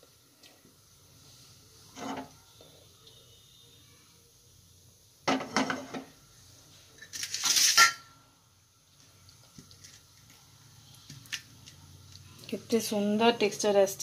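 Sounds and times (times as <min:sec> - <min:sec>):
frying pan clattering on grate: 0:05.2 - 0:06.1, 0:07.2 - 0:08.1.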